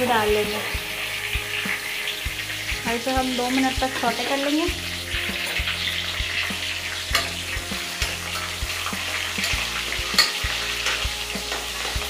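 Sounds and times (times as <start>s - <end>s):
spices sizzling in hot oil: 0.0s - 12.0s
metal spoon knocking against pan: 9.4s - 11.0s.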